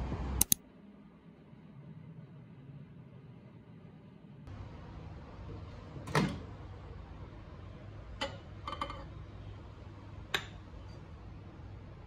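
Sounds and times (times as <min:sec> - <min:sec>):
ceramic plate clinking: 0:08.2 - 0:09.2.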